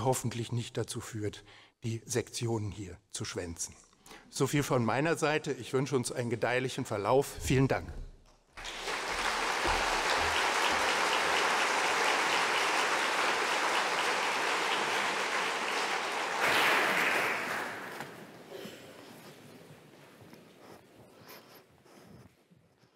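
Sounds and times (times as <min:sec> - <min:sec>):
audience applauding: 0:08.6 - 0:18.7.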